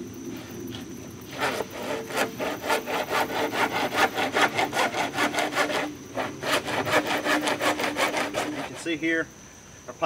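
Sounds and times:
hand saw cutting plastic pipe: 1.3s - 9.0s.

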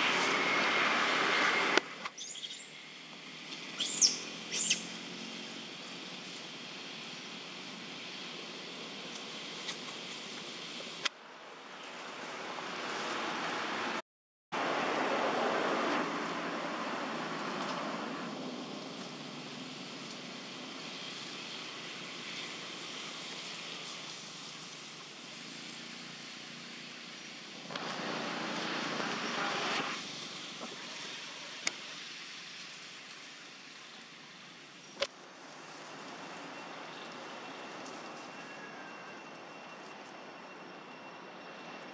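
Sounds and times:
rushing outdoor background noise: 0.0s - 41.9s.

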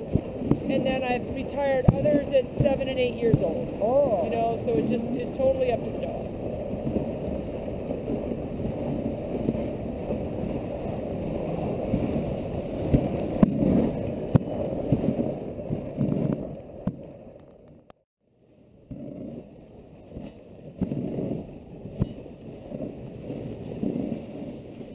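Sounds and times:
sled runners scraping on snow: 22.6s - 24.9s.

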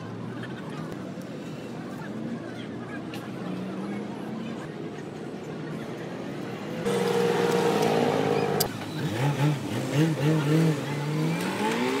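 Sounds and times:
truck engine revving: 6.9s - 12.0s.

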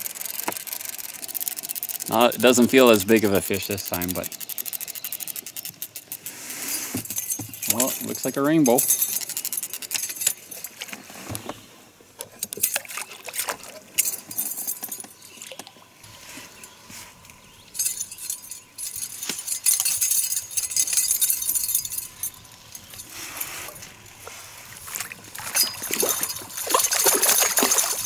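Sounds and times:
fish thrashing and splashing: 12.6s - 14.3s, 24.8s - 28.0s.

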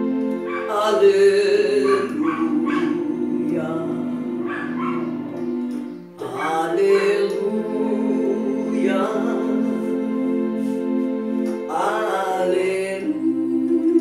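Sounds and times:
electronic keyboard organ chords: 0.0s - 14.0s
wavering voice-like calls: 1.8s - 5.4s.

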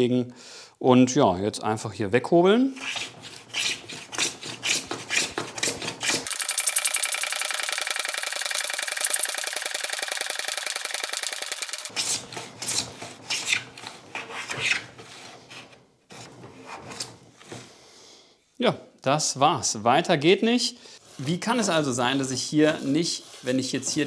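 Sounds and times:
hand plane rasping on wood: 3.0s - 6.3s, 22.5s - 24.0s.

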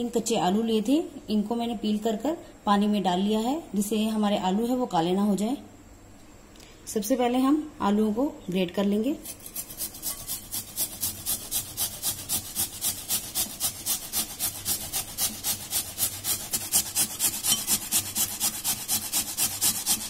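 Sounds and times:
potato grated on metal grater: 9.1s - 20.0s.

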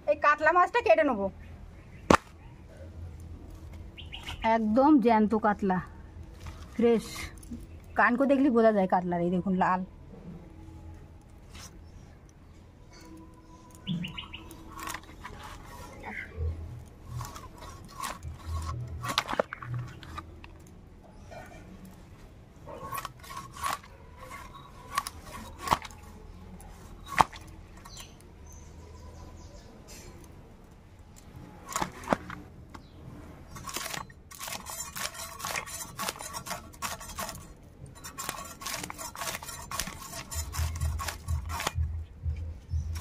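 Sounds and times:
knife scraping fish scales: 13.0s - 22.0s, 22.7s - 28.2s, 31.6s - 32.4s, 33.5s - 41.9s.

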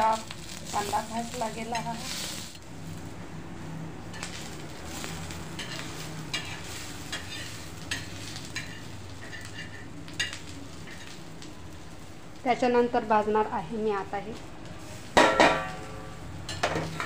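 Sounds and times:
onions sizzling in oil: 0.0s - 17.0s
metal spatula scraping griddle: 4.1s - 11.2s.

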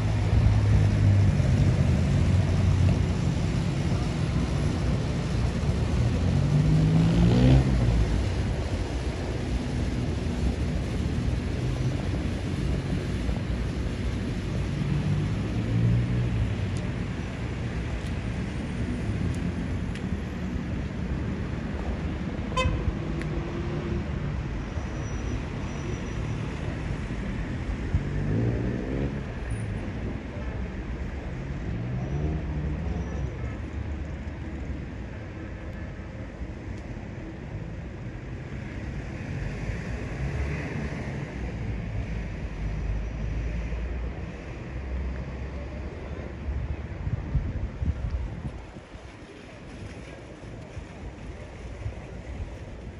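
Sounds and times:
traffic rumbling past: 0.0s - 52.9s
engine or horn sounds: 22.5s - 22.9s.

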